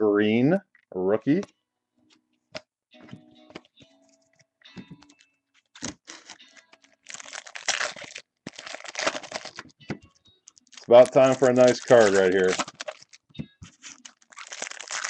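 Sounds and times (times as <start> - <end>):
wrapper tearing: 5.1 - 9.8, 10.4 - 15.0
cards clicking: 9.1 - 14.6.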